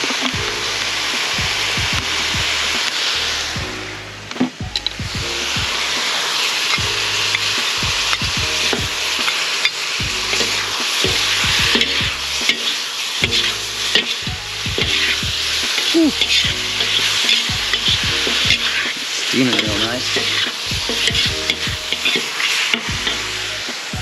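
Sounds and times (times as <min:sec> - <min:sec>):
food sizzling in a wok: 0:00.0 - 0:03.6, 0:04.9 - 0:24.0
metal utensils scraping a wok: 0:08.6 - 0:14.2, 0:14.8 - 0:23.5.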